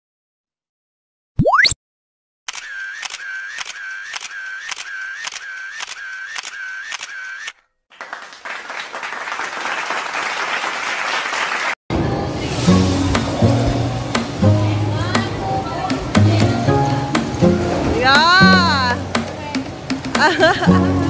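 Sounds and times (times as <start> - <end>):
camera shutter click with bent tone: 2.5 - 7.6.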